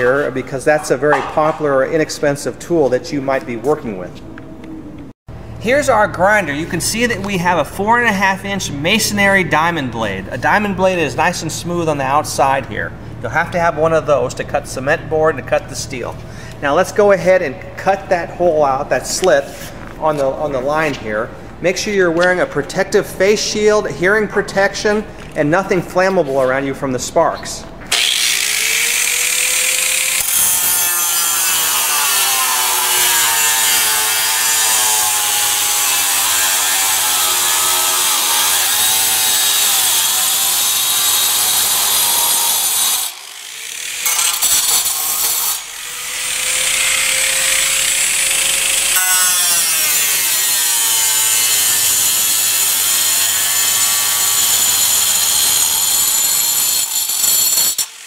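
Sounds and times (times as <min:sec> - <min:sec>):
angle grinder cutting metal: 0:27.9 - 0:58.0.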